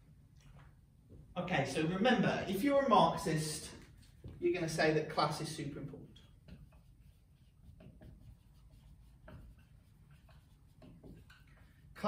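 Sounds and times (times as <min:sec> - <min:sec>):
marker writing on whiteboard: 0:03.2 - 0:12.0.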